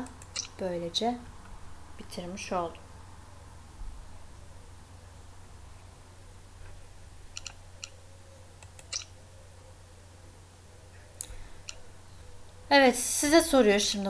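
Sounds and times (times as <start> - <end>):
faint low hum: 0.0 - 14.0
computer mouse clicks: 0.1 - 0.6, 7.3 - 8.0, 8.6 - 9.1, 11.1 - 11.8.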